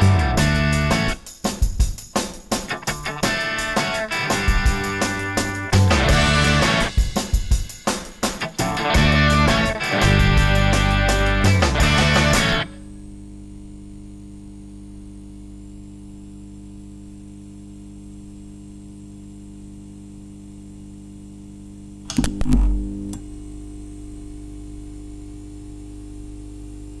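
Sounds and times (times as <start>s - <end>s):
steady electrical hum: 8.4s - 27.0s.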